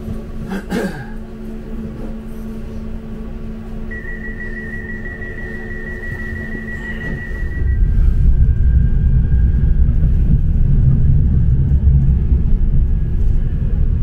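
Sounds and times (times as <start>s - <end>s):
tram electrical hum: 0.0s - 14.0s
high warning tone: 3.9s - 9.0s.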